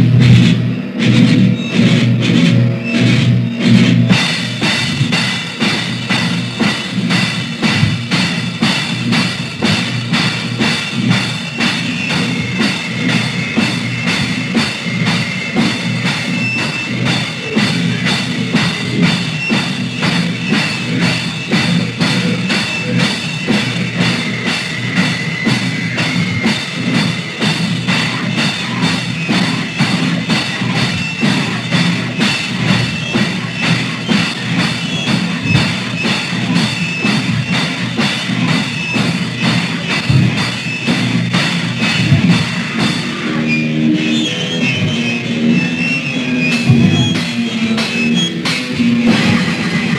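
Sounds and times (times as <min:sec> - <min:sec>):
fast drumming on drum kit: 0:00.0 - 0:49.9
punk band playing: 0:00.0 - 0:49.9.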